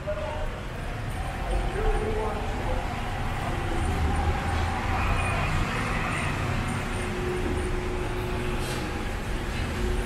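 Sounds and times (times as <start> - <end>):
traffic rumble: 0.0 - 10.0.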